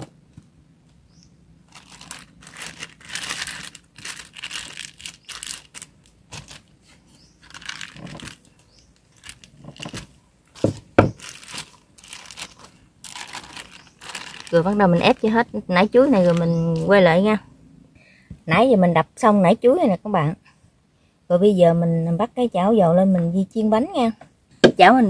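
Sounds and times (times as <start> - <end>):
plastic bag crinkling: 1.6 - 15.4, 16.0 - 17.0
dull thumps on cutting board: 10.6 - 11.2.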